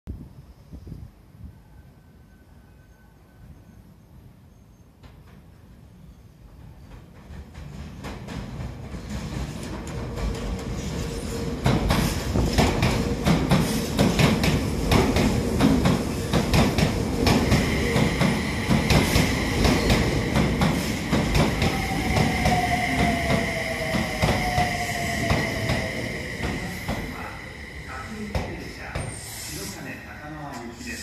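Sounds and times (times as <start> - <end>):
low train rumble: 0.2 - 31.0
train wheels clacking over rail joints: 6.7 - 23.1.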